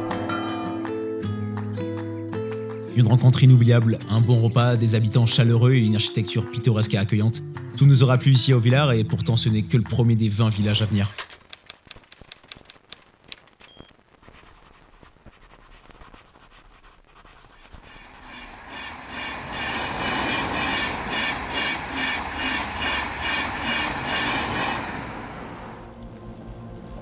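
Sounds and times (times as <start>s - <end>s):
faint clicks: 11.1s - 14.0s
rhythmic clattering with rumble: 18.0s - 27.0s.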